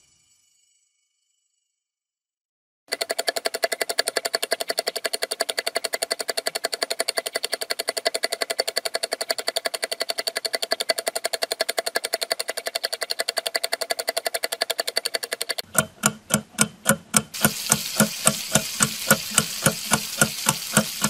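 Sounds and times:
rapid sharp ringing clicks: 15.3s - 21.0s.

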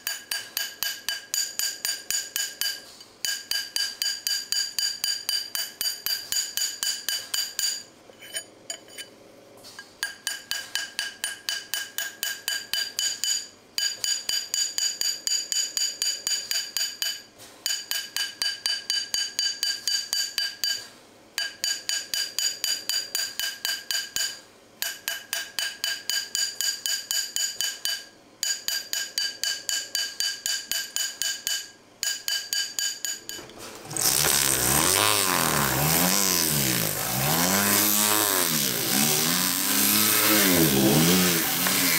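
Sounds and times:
rotary tool motor: 33.8s - 41.9s.

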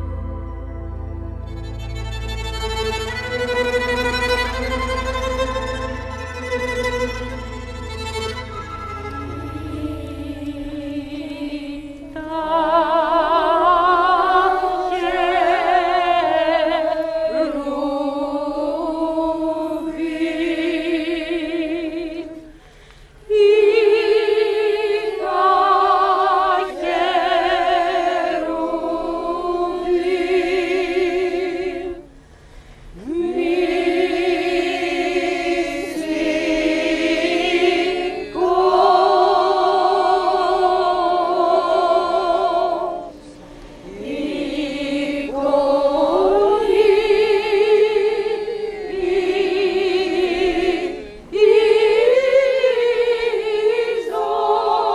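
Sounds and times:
women's choir singing a cappella: 9.2s - 22.6s, 23.2s - 32.2s, 32.9s - 54.9s.

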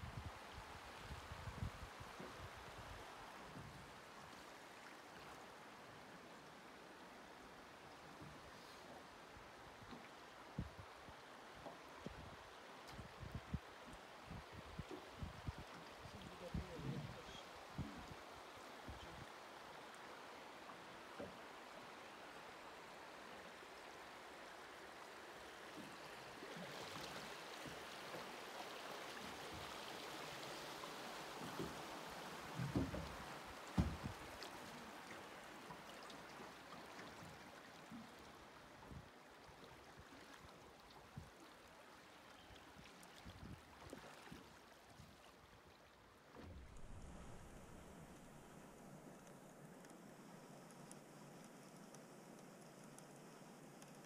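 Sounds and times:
river water rushing: 17.4s - 42.2s, 46.4s - 49.3s
low thumps: 46.4s - 48.6s.

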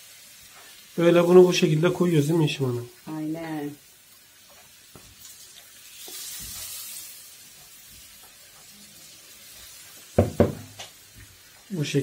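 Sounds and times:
batter sizzling in pan: 0.0s - 12.0s
sharp knocks: 10.2s - 10.8s.

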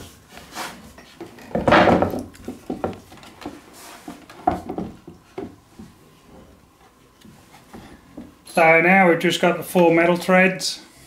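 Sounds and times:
wooden chair knocks and rubs: 1.2s - 6.0s.

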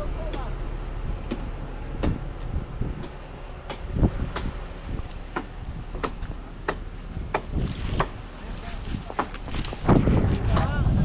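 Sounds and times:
sharp knocks and clanks: 1.2s - 4.6s, 5.2s - 8.2s, 9.0s - 10.8s.

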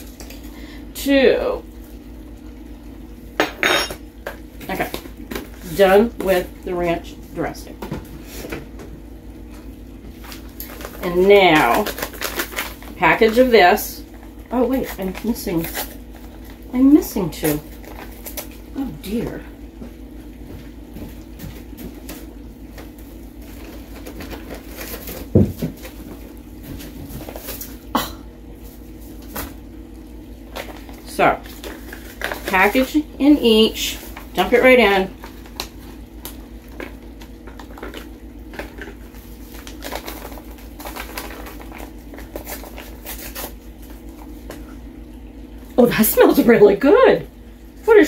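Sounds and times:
steady low hum: 0.0s - 48.0s
packets crinkling: 10.1s - 13.4s, 17.5s - 18.7s, 22.8s - 27.8s, 30.5s - 44.6s.

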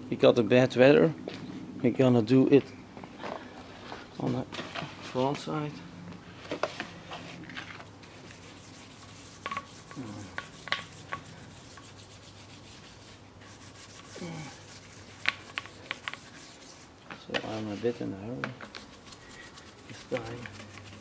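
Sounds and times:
scrubbing wheel rim: 18.7s - 21.0s.

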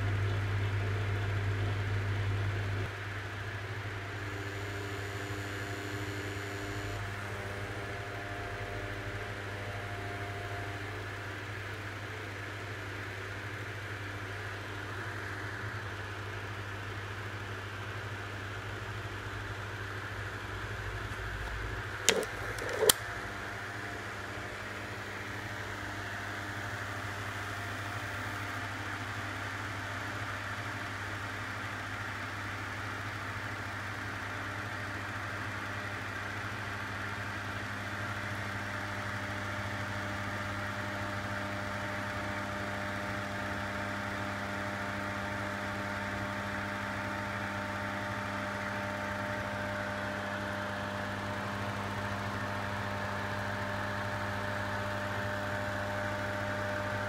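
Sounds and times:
electrical hum: 0.0s - 16.1s, 19.8s - 29.0s.

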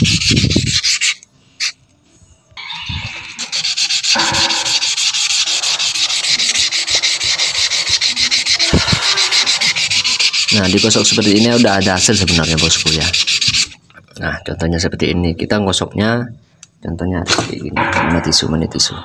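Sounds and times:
stone scratching on sandpaper: 0.0s - 1.8s, 2.6s - 13.8s.

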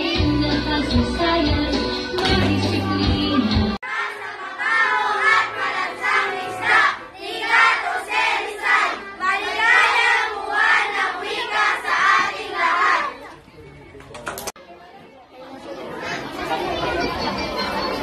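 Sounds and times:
backing music: 0.0s - 13.0s
children chanting in unison: 3.8s - 13.2s.

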